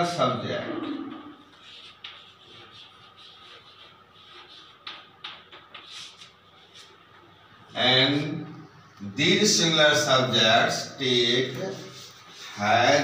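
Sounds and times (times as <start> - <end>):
chalk scratching on chalkboard: 1.1 - 7.0, 11.4 - 13.0
chalk tapping on board: 1.5 - 6.9.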